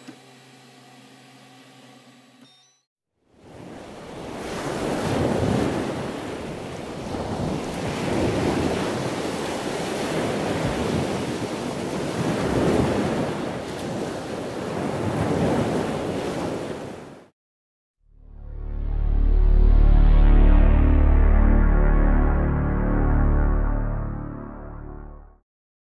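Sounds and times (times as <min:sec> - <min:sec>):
ocean waves washing ashore: 0:03.3 - 0:17.3.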